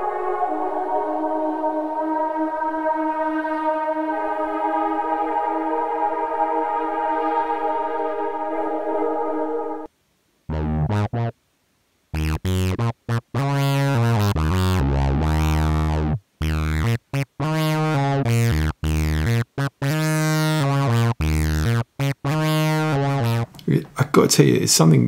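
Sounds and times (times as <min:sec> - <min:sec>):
synthesizer chord stabs: 0:00.0 - 0:09.9, 0:10.5 - 0:11.3, 0:12.2 - 0:23.5
deep synth bass: 0:10.5 - 0:11.3, 0:12.2 - 0:23.5.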